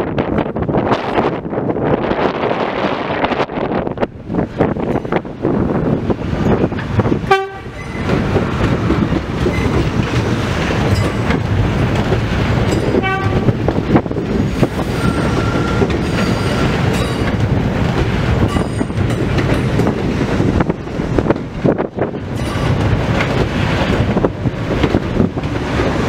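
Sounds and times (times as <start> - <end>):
subway train rumbling past: 0.0 - 26.0
train horn toot: 7.3 - 7.8, 12.9 - 13.6
high squeal: 14.8 - 16.7.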